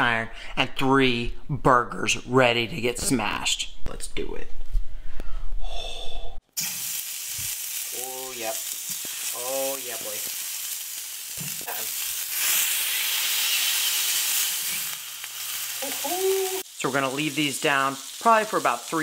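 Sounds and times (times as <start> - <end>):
meat sizzling on a griddle: 6.5 - 19.0.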